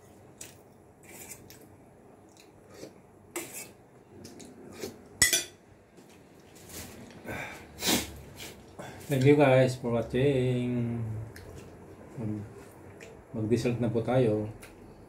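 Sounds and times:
cutlery clinking on plates: 5.2 - 5.6.

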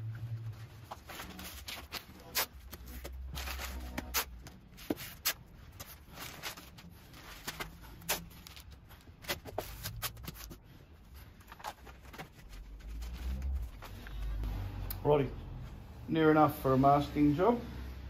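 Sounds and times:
newspaper rustling and crinkling: 0.2 - 14.4.

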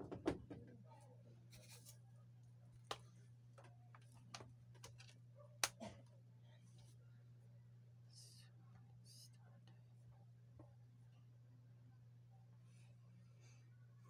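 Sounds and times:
steady low hum: 0.6 - 14.0.

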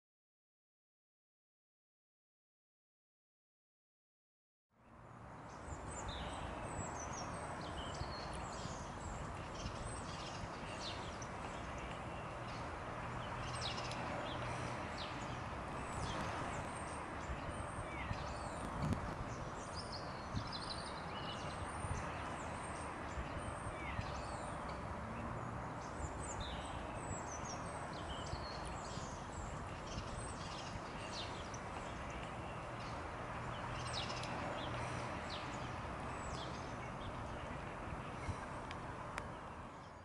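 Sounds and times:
outdoor background noise: 4.7 - 40.0
birds chirping: 5.2 - 40.0
faint clicks: 38.6 - 39.3.

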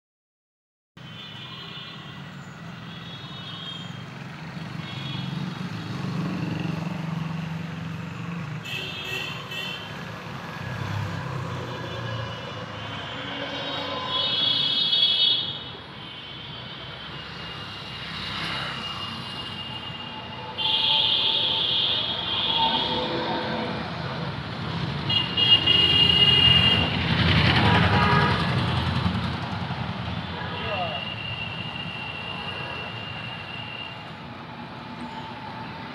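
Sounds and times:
road traffic rumbling: 1.0 - 35.9
vehicle horn: 8.6 - 10.0, 11.6 - 17.1, 19.4 - 23.8, 25.1 - 27.0, 27.6 - 28.5, 30.3 - 34.0.

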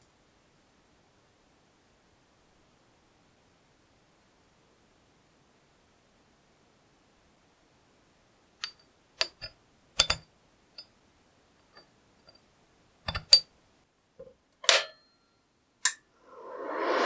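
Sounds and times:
metal plates clicking against vise: 8.6 - 10.2, 13.1 - 13.4.

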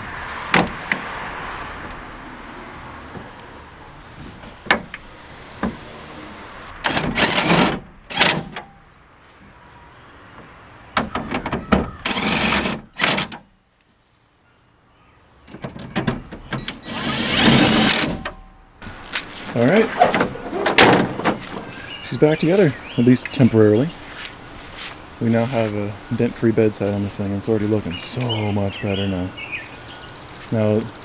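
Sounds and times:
cordless drill driving fasteners: 6.8 - 8.5, 12.1 - 13.4.

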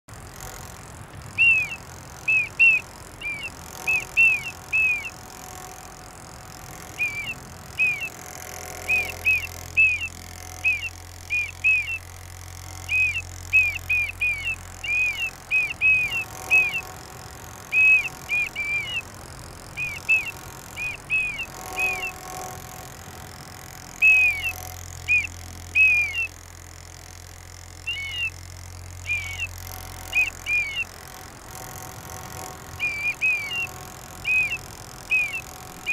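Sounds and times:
child blowing plastic whistle: 1.4 - 5.2, 6.8 - 8.2, 8.9 - 12.1, 12.9 - 16.8, 17.7 - 19.1, 24.0 - 26.3, 29.0 - 29.5, 32.8 - 35.9.

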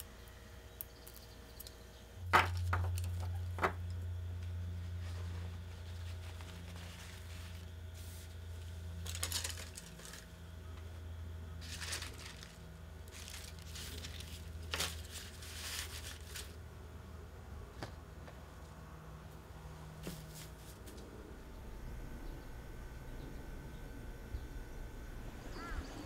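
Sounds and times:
steady low hum: 0.0 - 26.0
bamboo leaves rustling: 4.7 - 10.4, 11.6 - 16.6.

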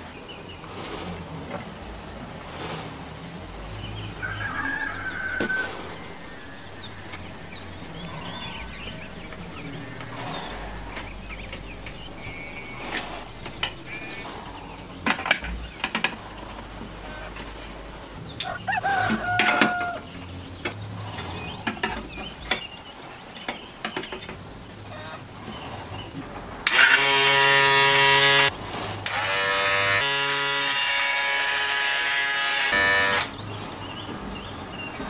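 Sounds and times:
loud electric buzz: 4.8 - 15.0, 26.6 - 33.4.

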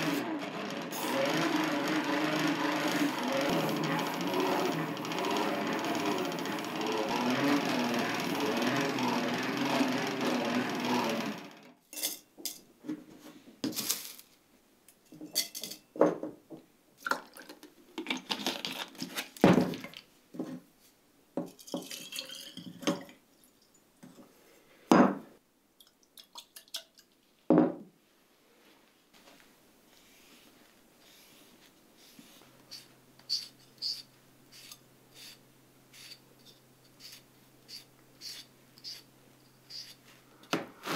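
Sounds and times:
buffing wheel grinding knife: 0.0 - 11.7, 32.6 - 40.1
glassware clinking: 21.6 - 23.1
glass set down on wood: 27.5 - 27.8.

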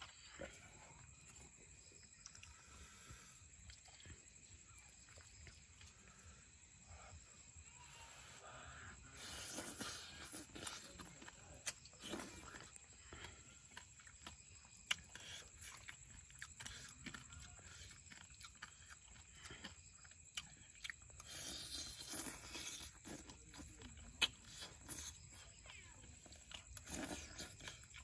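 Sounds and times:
person chewing: 0.0 - 6.2, 8.7 - 28.0.

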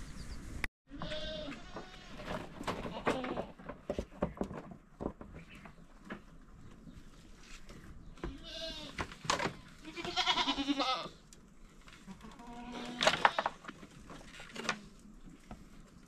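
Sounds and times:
goats bleating: 0.9 - 2.2, 8.3 - 9.0, 9.8 - 11.2, 12.1 - 13.5.

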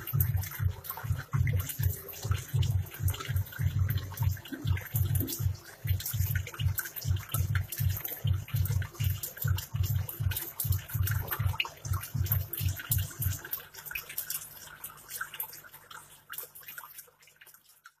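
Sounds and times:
low throbbing pulse: 0.0 - 13.4
air bubbling through water: 0.0 - 13.6.

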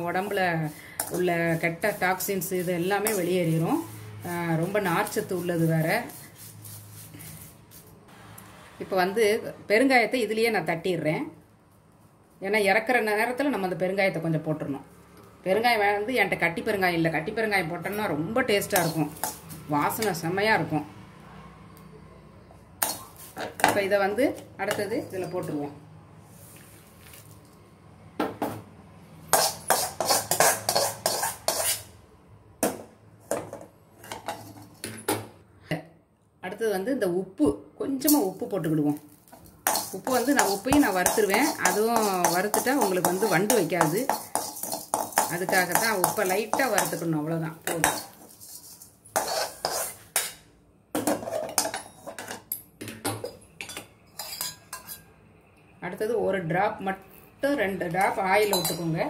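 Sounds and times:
metal ladle scraping a pan: 0.6 - 7.8, 29.3 - 32.0, 39.3 - 50.4, 51.0 - 52.4, 54.1 - 55.1.

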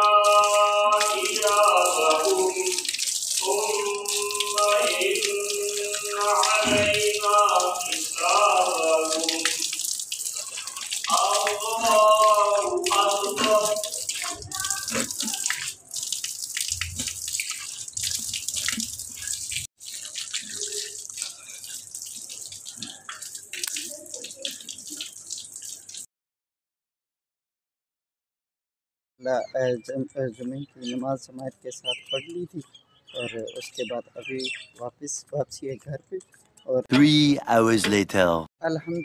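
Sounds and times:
man's voice: 0.0 - 2.8, 3.4 - 9.6, 11.1 - 13.8, 29.2 - 32.6, 33.2 - 39.0
water running from a tap: 0.0 - 26.1.

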